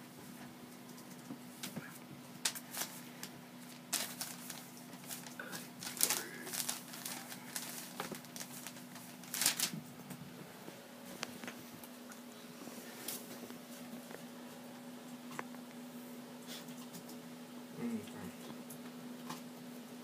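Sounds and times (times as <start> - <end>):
paper crinkling: 1.0 - 10.2.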